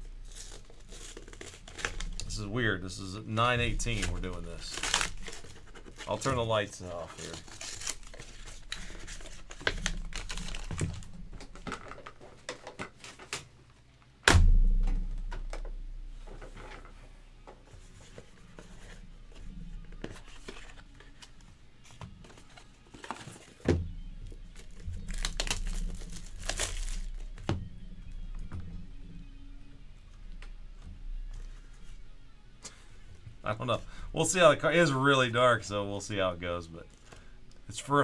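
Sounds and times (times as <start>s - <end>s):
plastic wrap tearing and crinkling: 0.0s - 13.5s, 24.5s - 27.5s.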